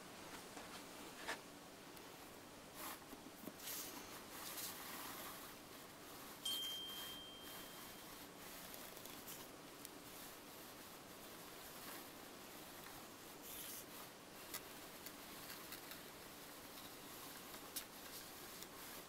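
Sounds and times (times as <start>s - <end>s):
thin high ring: 6.4s - 8.3s.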